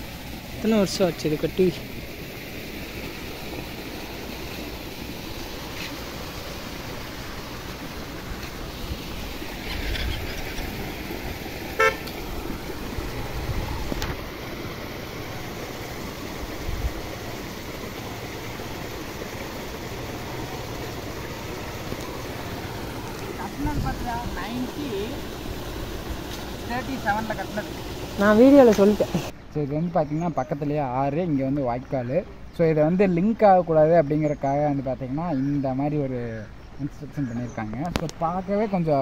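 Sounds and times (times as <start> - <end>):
outdoor background noise: 0.0 - 39.0
horn beep: 11.8 - 12.0.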